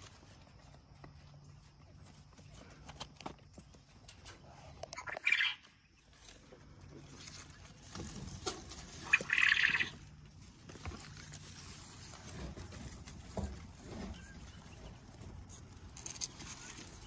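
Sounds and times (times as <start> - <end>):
leaves rustling: 5.5 - 17.0.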